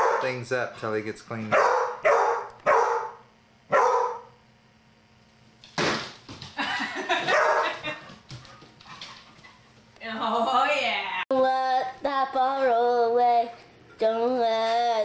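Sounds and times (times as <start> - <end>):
dog barking: 0.0 - 0.4, 1.5 - 4.4, 7.2 - 7.8.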